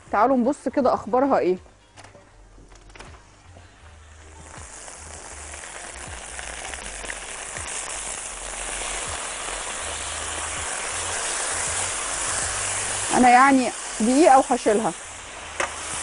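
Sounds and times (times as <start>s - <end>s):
chicken sizzling in grill pan: 4.0s - 16.0s.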